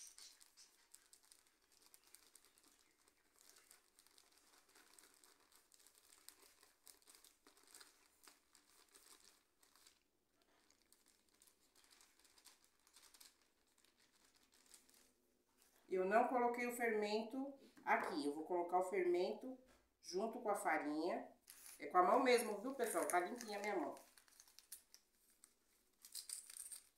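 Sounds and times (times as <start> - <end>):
plastic bag crinkling: 0.0 - 15.9, 21.4 - 26.9.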